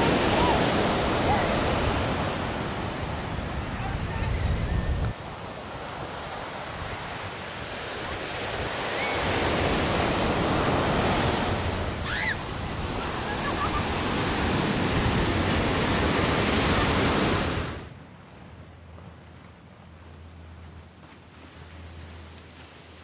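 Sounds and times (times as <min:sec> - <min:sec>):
ocean surf breaking: 0:00.0 - 0:17.9.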